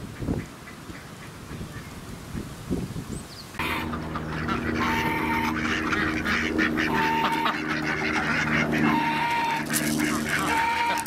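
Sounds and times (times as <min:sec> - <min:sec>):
ducks and geese calling: 0:03.5 - 0:11.0
higher held bird call: 0:03.6 - 0:11.0.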